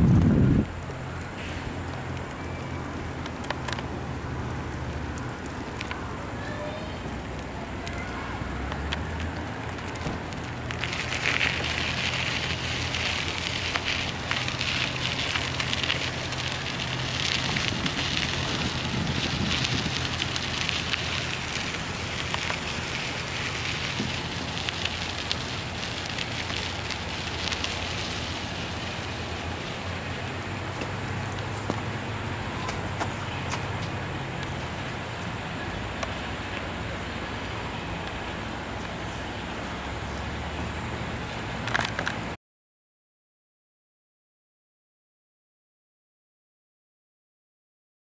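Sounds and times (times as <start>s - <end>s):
wind rumble: 0.0s - 6.4s, 8.4s - 36.0s
bicycle tyres crunching on gravel: 0.1s - 42.1s.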